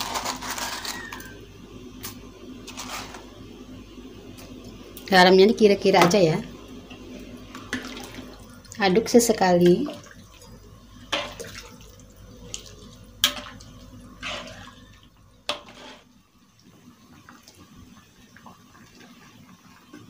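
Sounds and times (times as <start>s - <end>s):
liquid sloshing in a wok: 9.7s - 19.6s.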